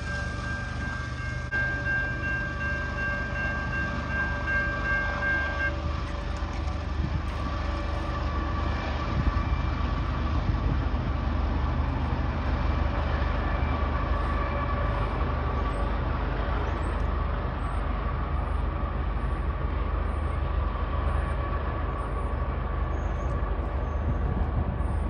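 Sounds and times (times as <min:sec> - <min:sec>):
distant locomotive horn: 0:00.0 - 0:10.3, 0:12.4 - 0:16.7
train rumble: 0:00.0 - 0:25.0.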